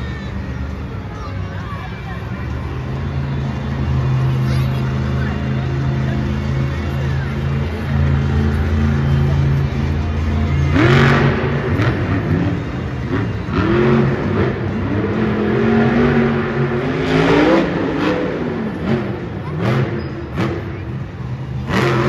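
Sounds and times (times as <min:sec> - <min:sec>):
truck engine idling and revving: 0:00.0 - 0:22.0.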